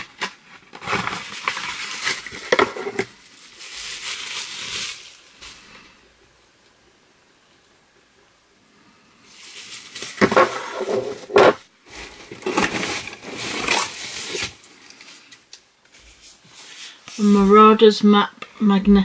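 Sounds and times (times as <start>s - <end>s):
packaging rustling and crinkling: 0.0s - 5.9s, 9.2s - 17.3s.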